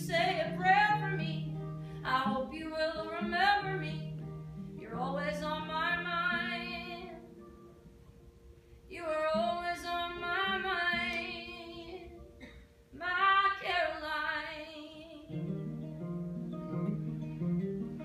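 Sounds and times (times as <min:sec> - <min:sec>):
woman singing: 0:00.0 - 0:07.4, 0:08.9 - 0:12.4, 0:13.0 - 0:15.5
strummed acoustic guitar: 0:00.0 - 0:08.0, 0:15.3 - 0:18.0.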